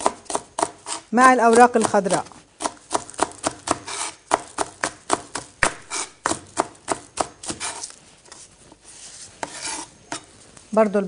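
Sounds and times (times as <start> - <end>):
knife chopping on cutting board: 0.0 - 7.9.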